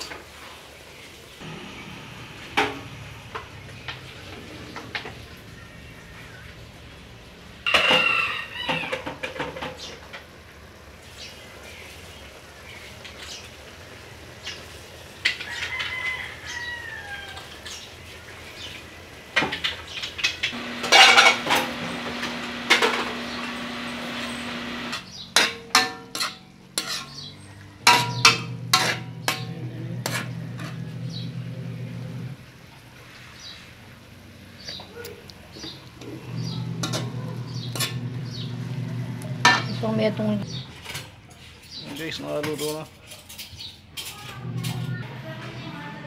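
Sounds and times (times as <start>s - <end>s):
loud noise: 1.4s - 4.3s, 20.6s - 25.0s, 36.1s - 40.6s
metal ladle scraping a wok: 25.3s - 32.1s, 36.4s - 38.7s.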